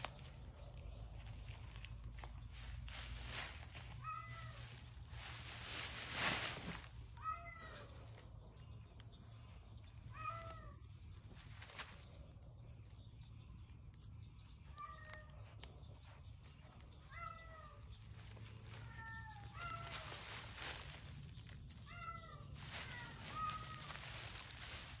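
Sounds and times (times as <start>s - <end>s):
leaves and grass rustling: 0.0s - 25.0s
cat meowing: 18.8s - 20.2s.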